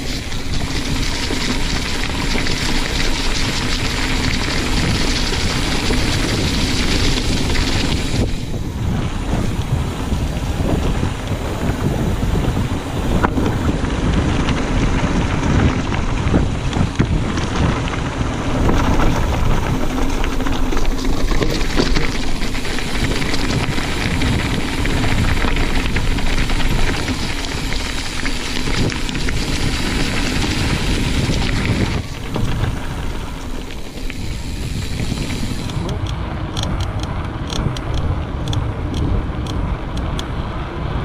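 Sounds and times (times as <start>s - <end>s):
tyres crunching over gravel: 0.0s - 37.9s
wind rushing over microphone: 0.0s - 41.0s
bike knocking over bumps: 9.4s - 34.2s.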